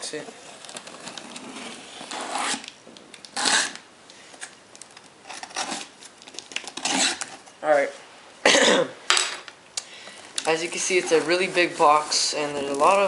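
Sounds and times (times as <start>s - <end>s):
blade slitting packing tape: 1.1s - 3.8s, 5.2s - 7.4s.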